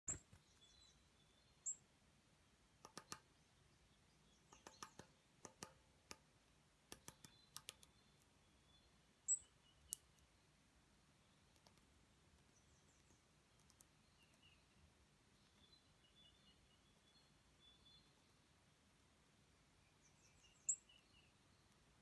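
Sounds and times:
bird tapping seed on metal: 2.8 - 3.2, 4.5 - 6.2, 6.9 - 7.9
high bird chirps: 4.2 - 5.7, 7.0 - 10.2, 12.4 - 18.4, 19.8 - 21.8.

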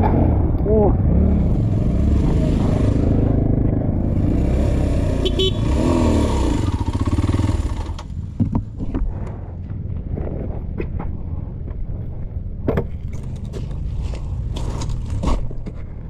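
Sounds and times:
motorcycle engine running: 1.1 - 8.4.

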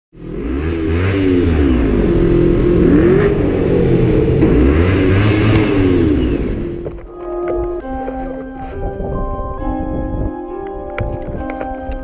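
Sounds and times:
engine revving: 0.2 - 8.0.

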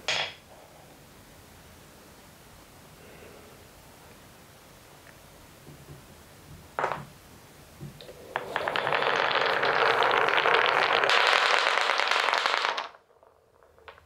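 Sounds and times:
wooden balls clattering: 8.0 - 14.0.

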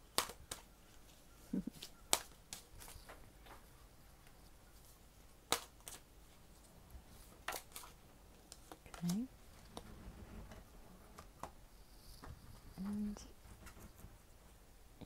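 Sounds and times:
cards slapping against deck: 0.1 - 0.7, 1.8 - 3.6, 5.5 - 6.0, 7.4 - 9.2.

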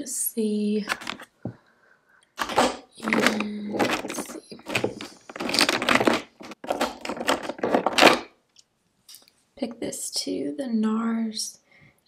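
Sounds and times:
plastic makeup tubes clattering: 0.8 - 1.3, 2.4 - 8.3.

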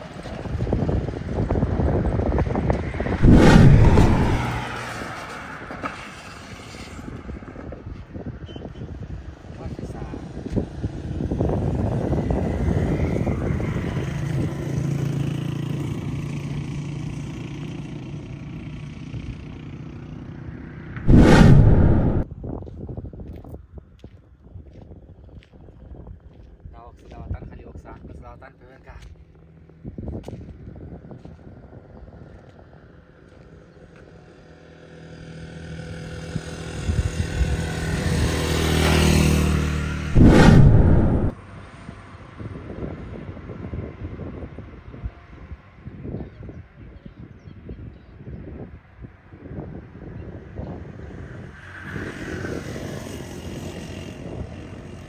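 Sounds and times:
motor vehicle passing: 3.1 - 5.6, 21.1 - 22.2, 39.9 - 41.3.

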